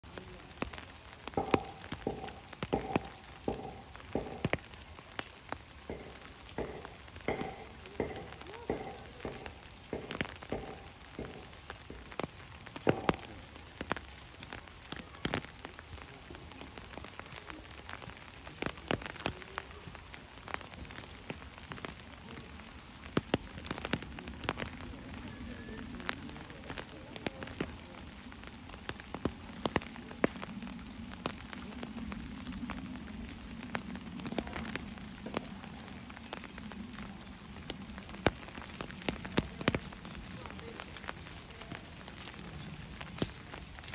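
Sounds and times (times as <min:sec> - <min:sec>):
steady rain: 0:00.0 - 0:43.9
drops tapping hard surface: 0:00.6 - 0:14.6.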